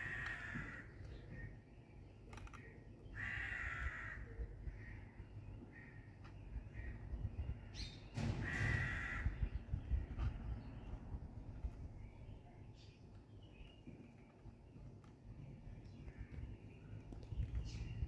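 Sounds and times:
crow cawing: 0.0 - 1.0, 3.1 - 5.0, 8.4 - 9.5.

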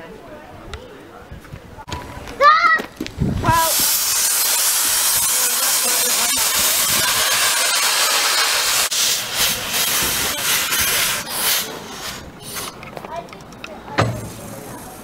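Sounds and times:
steam hissing and puffing: 3.4 - 12.9, 14.0 - 15.0.

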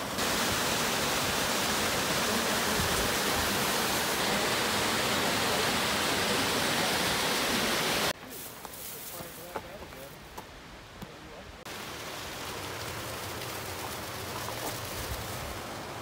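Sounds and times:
waterfall rushing and splashing: 0.0 - 8.2, 11.6 - 16.0.

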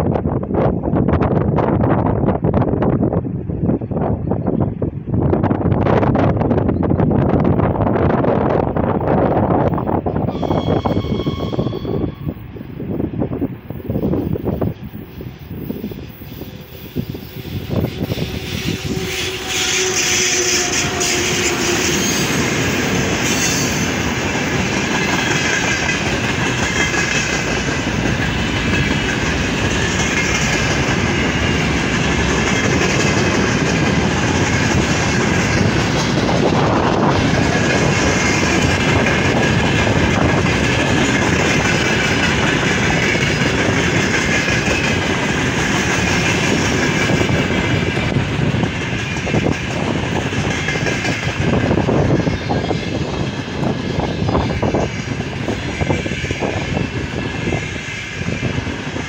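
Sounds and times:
electric locomotive passing: 0.0 - 59.0
freight wagons rumbling: 20.6 - 52.2.

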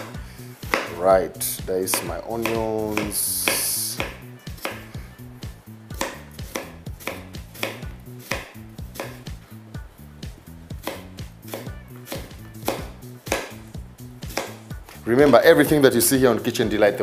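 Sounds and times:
knife slicing onions on board: 0.0 - 1.1, 1.8 - 5.0, 5.9 - 9.4, 10.8 - 15.0.

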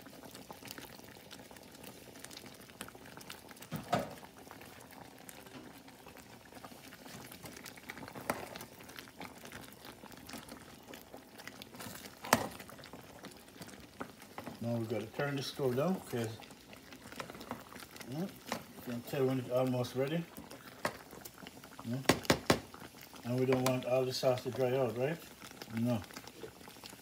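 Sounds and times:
sauce bubbling in a pot: 0.0 - 27.0
sharp knocks: 22.1 - 22.7.

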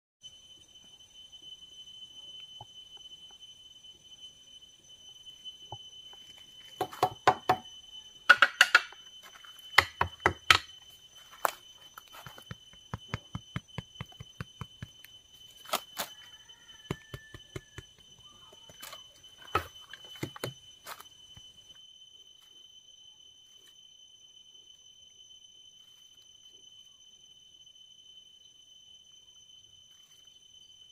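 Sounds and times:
machete chopping bamboo: 6.8 - 7.6, 8.3 - 9.0, 9.8 - 10.7.

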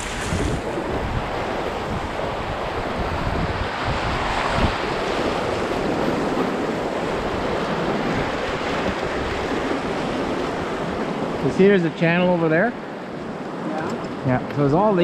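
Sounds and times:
wind buffeting the microphone: 0.0 - 11.5.

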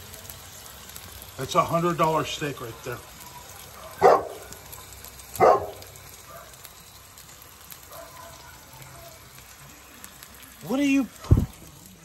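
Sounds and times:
dog barking: 3.7 - 4.7, 5.4 - 6.6, 7.8 - 9.2.

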